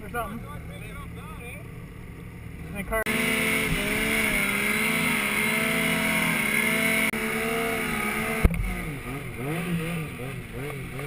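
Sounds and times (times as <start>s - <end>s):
snowmobile engine running hard: 3.1s - 11.0s.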